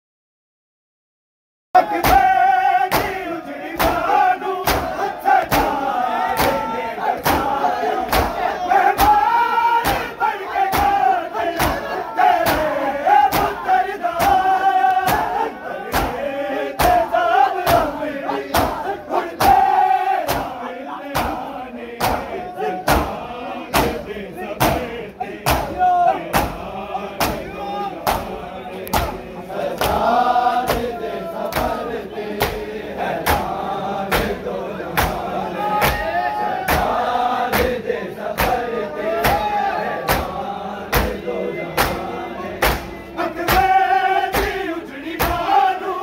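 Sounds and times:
men chanting a lament: 1.8s - 46.0s
hands slapping chests: 2.9s - 3.2s, 4.6s - 6.6s, 9.8s - 10.1s, 14.2s - 16.2s, 32.4s - 32.6s, 33.2s - 33.5s, 35.0s - 35.2s, 38.4s - 38.6s, 40.1s - 40.3s, 41.8s - 42.0s, 42.6s - 42.9s, 44.3s - 44.6s.

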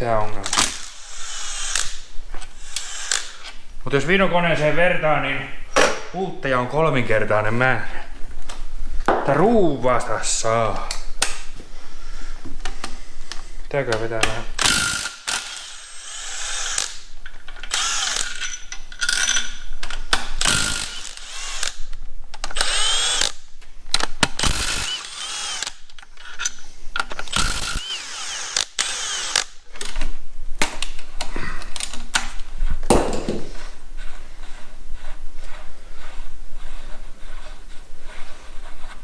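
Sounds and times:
impact driver motor whining: 14.6s - 17.0s, 17.7s - 18.4s, 22.5s - 23.4s, 24.4s - 25.8s, 27.2s - 29.5s.

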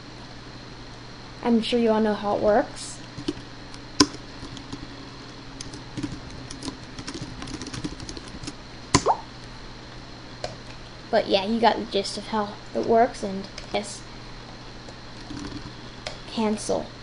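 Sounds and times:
computer keyboard typing: 3.2s - 3.4s, 4.0s - 4.8s, 5.6s - 8.6s, 15.2s - 15.7s.

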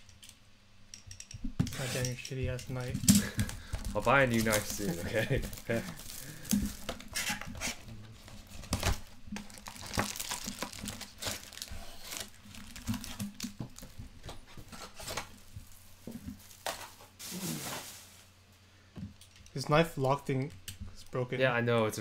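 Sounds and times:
foil packs crinkling and rustling: 2.8s - 18.4s.

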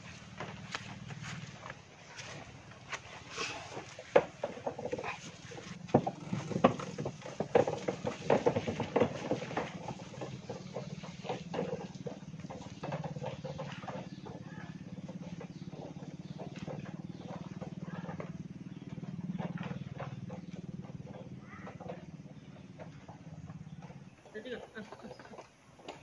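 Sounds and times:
wooden handcart rattling: 0.0s - 26.0s.

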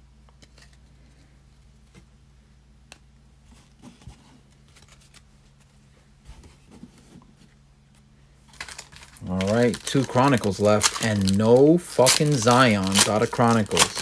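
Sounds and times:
low steady hum: 0.0s - 14.0s
crinkly foil pack rustle: 8.5s - 14.0s
trading cards clicking and sliding: 8.7s - 14.0s.

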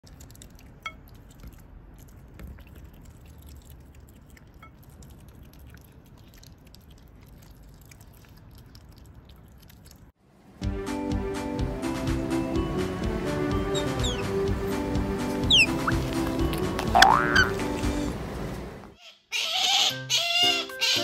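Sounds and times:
otter chewing fish: 0.0s - 10.2s, 13.7s - 18.1s
otter high chirps: 13.6s - 14.5s, 15.3s - 18.1s.

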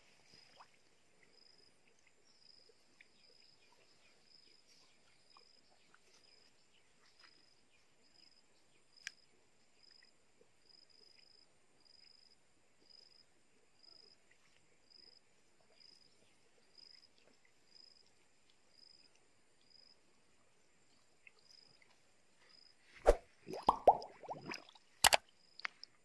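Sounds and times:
insect chirping: 0.0s - 26.0s
faint ticks: 8.2s - 10.2s, 25.0s - 26.0s.

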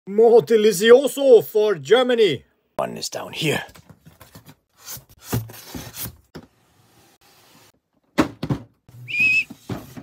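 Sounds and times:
cardboard scraping and rustling: 4.0s - 6.3s
short high squeak: 9.0s - 9.5s.

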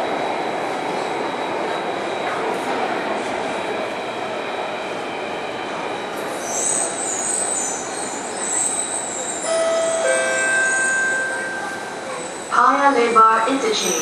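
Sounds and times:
metro train running noise: 0.0s - 14.0s
high wavering brake squeal: 6.2s - 14.0s
steady tones: 9.5s - 14.0s.

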